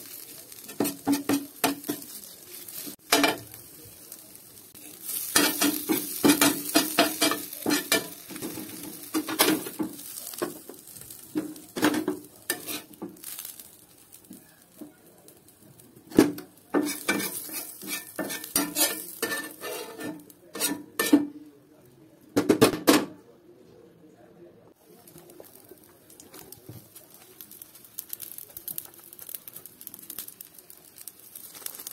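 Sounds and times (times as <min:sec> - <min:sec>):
oil sizzling: 0:00.0 - 0:21.3, 0:24.8 - 0:31.9
spatula scraping iron pan: 0:00.7 - 0:02.2, 0:05.2 - 0:09.7, 0:11.8 - 0:13.0, 0:16.7 - 0:21.3.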